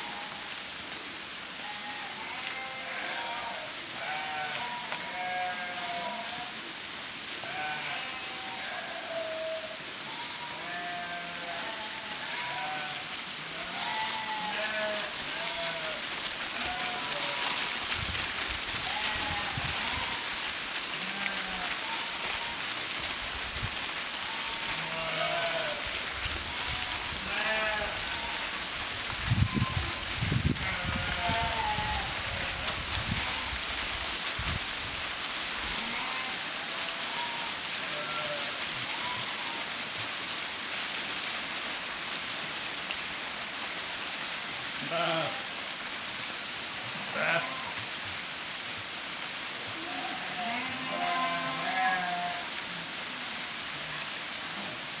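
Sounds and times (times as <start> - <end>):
hooves crunching dry leaves: 0.0 - 55.0
sheep bleating: 1.6 - 6.6, 7.4 - 17.7, 18.8 - 20.3, 21.0 - 22.6, 24.2 - 28.5, 30.6 - 33.4, 35.7 - 39.7, 44.8 - 45.5, 47.0 - 47.8, 49.8 - 52.5.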